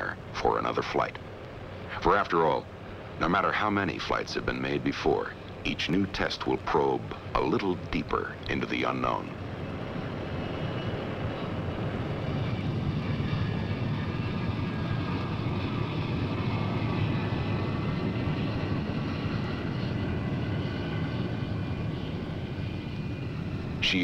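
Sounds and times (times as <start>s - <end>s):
faint high whine: 0.0s - 24.0s
jet engine low rumble: 0.0s - 24.0s.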